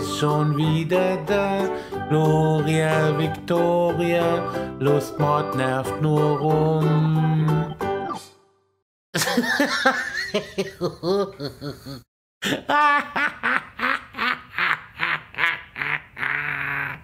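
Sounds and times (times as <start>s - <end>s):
high-pitched voice laughing: 10.0s - 17.0s.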